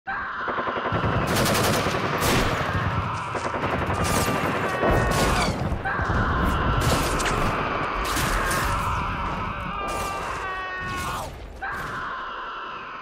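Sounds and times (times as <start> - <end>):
rapid gunfire: 0.5 - 9.0.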